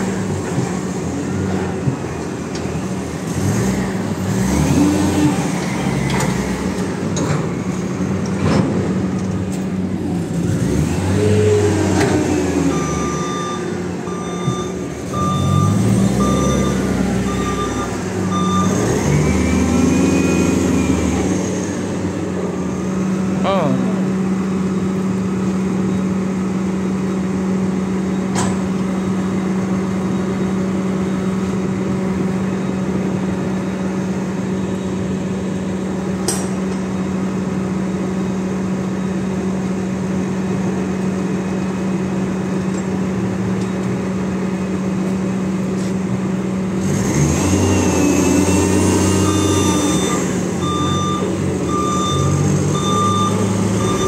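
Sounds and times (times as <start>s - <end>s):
diesel engine running: 0.0s - 54.0s
reversing alarm beeping: 12.6s - 21.2s, 48.4s - 54.0s.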